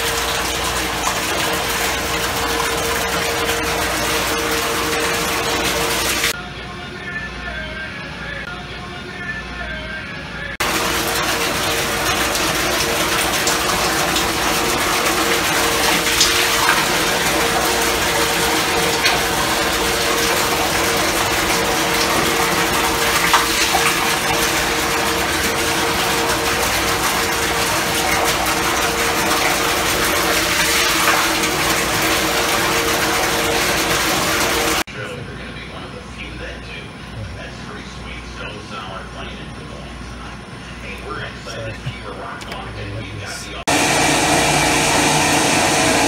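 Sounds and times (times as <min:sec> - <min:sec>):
rushing machinery hum: 0:43.0 - 0:46.0.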